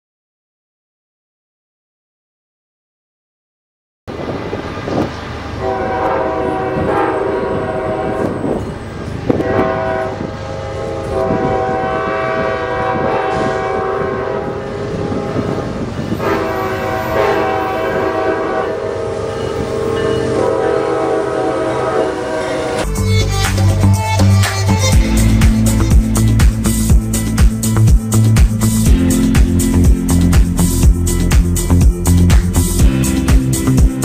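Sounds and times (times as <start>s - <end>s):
train rumble: 4.1s - 34.0s
locomotive air horn blasts: 5.6s - 8.7s, 9.3s - 27.4s
music with heavy beat: 22.8s - 34.0s.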